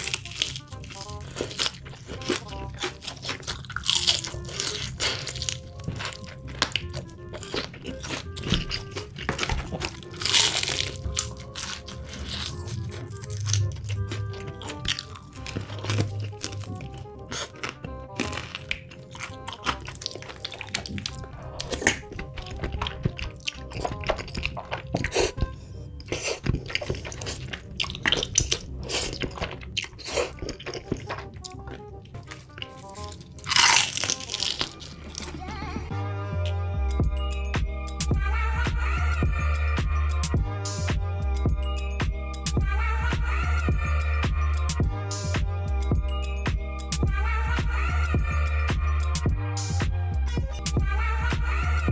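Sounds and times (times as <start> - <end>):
crunchy chicken bites: 0.0 - 25.3, 32.6 - 35.0
close chewing: 0.0 - 35.9
background music with light melody: 0.0 - 51.9.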